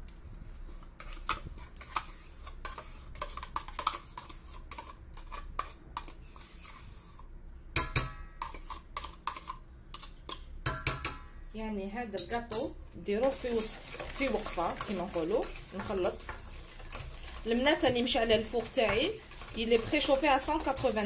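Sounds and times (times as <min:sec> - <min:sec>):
spoon scraping plastic cup: 0:01.0 - 0:07.2, 0:13.2 - 0:21.0.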